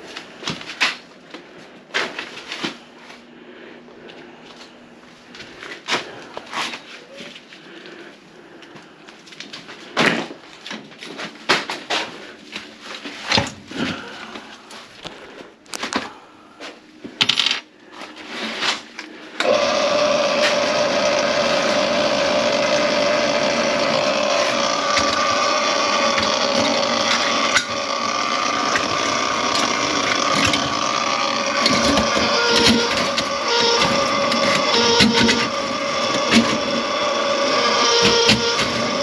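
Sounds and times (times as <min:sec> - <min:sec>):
small electric motor whining: 0:19.4 - 0:39.0
sharp clicks and knocks: 0:28.6 - 0:36.7.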